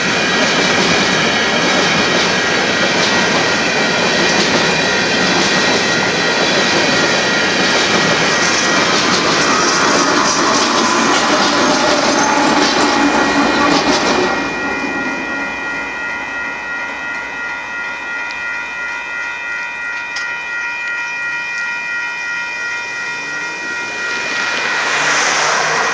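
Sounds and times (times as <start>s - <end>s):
freight train wheels rolling: 0.0s - 20.4s, 22.5s - 25.9s
crossing warning bell ringing: 0.0s - 25.9s.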